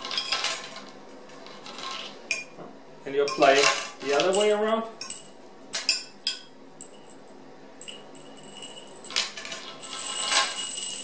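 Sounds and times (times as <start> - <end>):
metal chain clinking and rattling: 7.8 - 11.0.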